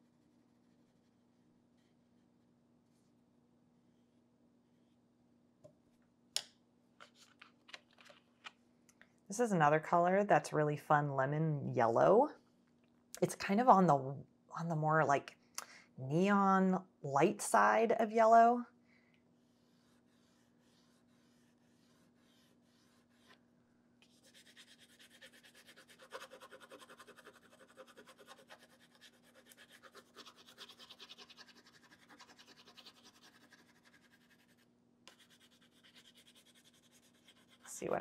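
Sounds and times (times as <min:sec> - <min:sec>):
wax pastel scratching on paper: 0:19.4 - 0:23.4, 0:24.0 - 0:37.8.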